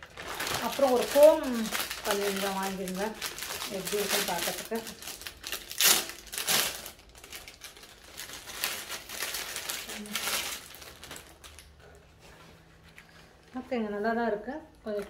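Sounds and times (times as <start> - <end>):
plastic packaging crinkling: 0.0 - 11.8.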